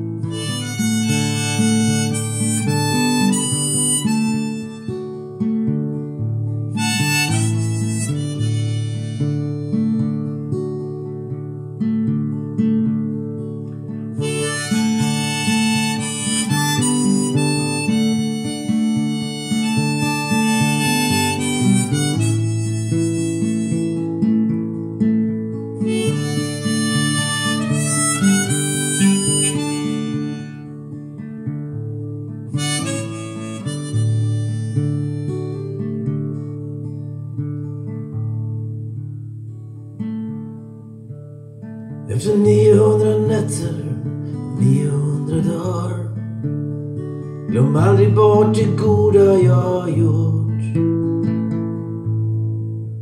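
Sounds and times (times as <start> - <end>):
harmonica melody: 0.0 - 11.1, 14.1 - 37.0, 42.1 - 50.3
acoustic guitar strumming: 0.0 - 53.0.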